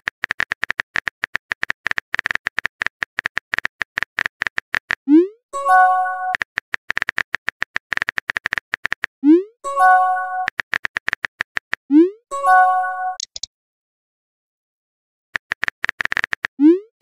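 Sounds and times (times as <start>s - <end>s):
notification chime: 9.7s - 10.5s, 12.3s - 13.2s.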